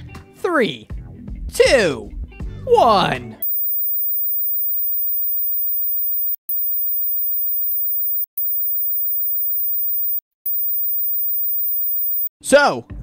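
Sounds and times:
high-pitched sine tone: 3.4 - 12.3.

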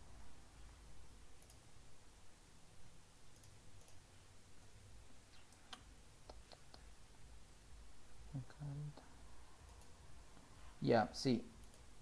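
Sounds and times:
computer mouse clicks: 1.4 - 1.6, 3.3 - 4.0, 9.6 - 10.0.

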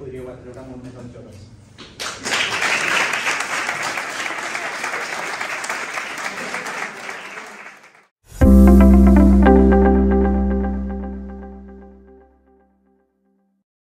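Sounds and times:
people applauding: 1.8 - 8.1
loud music with deep bass: 8.4 - 11.9.

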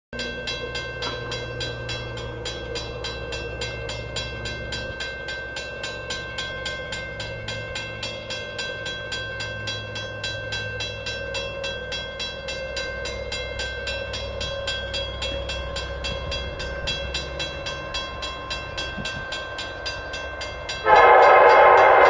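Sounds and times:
crossing bell ringing: 0.1 - 22.0.

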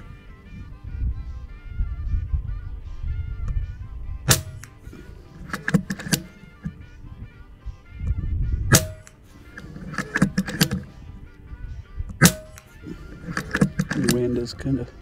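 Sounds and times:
faint music: 0.0 - 15.0
wind rumbling on microphone: 0.0 - 15.0
air rifle shots: 4.2 - 6.6, 8.7 - 10.9, 12.1 - 14.2
metallic clicks of rifle action: 4.3 - 6.8, 8.0 - 10.9, 12.1 - 14.3.

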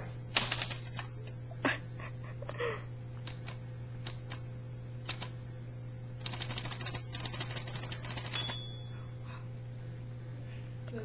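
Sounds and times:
typewriter keystrokes: 0.3 - 0.9, 5.1 - 5.3, 6.2 - 8.7
typewriter bell ring: 6.3 - 9.0.

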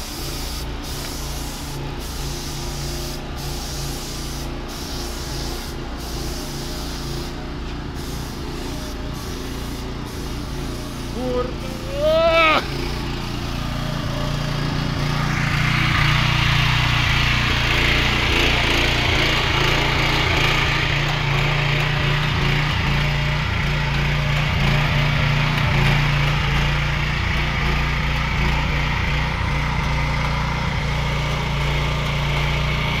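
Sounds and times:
sprayer hiss: 0.0 - 28.9
small petrol engine running: 0.0 - 33.0.

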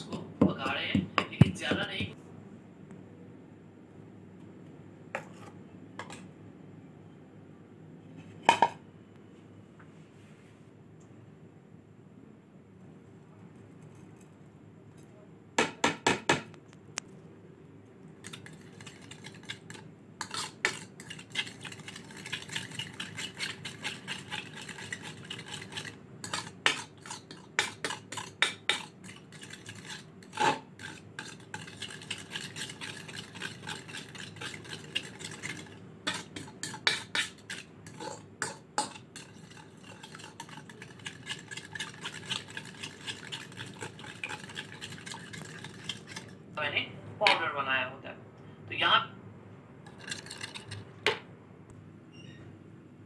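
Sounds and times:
spoon scraping and clinking bowl: 18.2 - 46.4, 49.9 - 50.9.

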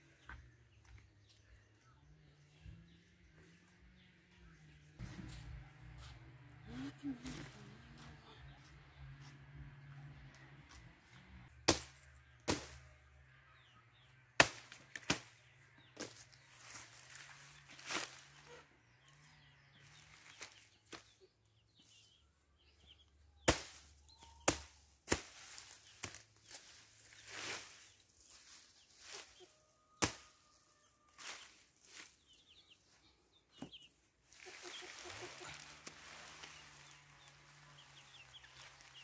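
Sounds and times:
knife chopping leaves and stalks: 11.6 - 12.9, 14.4 - 18.4, 23.4 - 27.8, 29.0 - 30.5.

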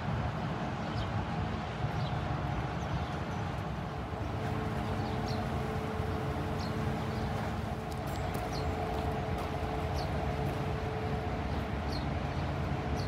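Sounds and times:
ship engine rumble: 3.6 - 13.0
machinery hum: 3.8 - 13.0.

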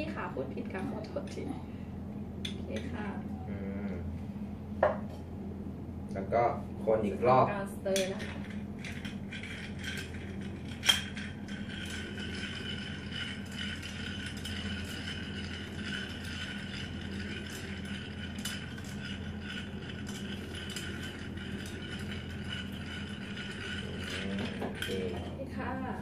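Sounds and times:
spoon stirring ice in glass: 8.2 - 25.3.

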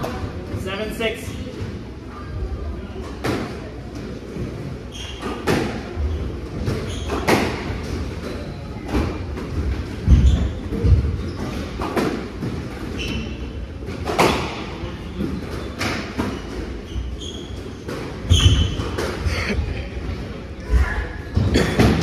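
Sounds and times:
sneaker squeaks on wooden floor: 4.8 - 9.2, 10.0 - 19.2.

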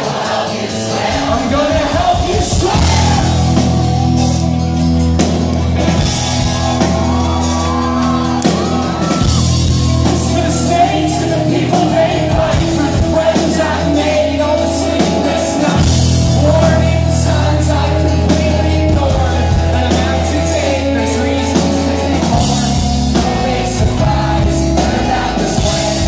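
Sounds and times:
crowd shouting: 0.0 - 16.2
live rock band playing: 0.0 - 26.0
person singing: 7.8 - 26.0.

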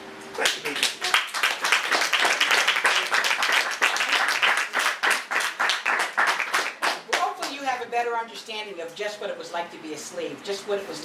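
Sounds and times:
audience applauding: 0.4 - 7.3.

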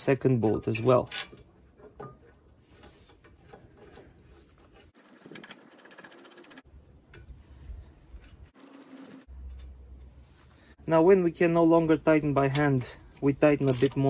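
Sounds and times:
metallic clicking and handling: 13.6 - 14.0.

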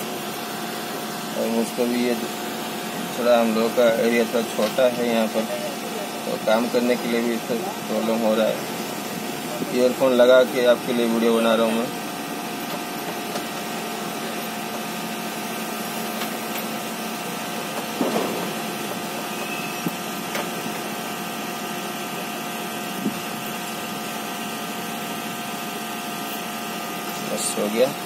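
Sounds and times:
electric blower fan whirring: 0.0 - 28.0
steady hum: 0.0 - 28.0.

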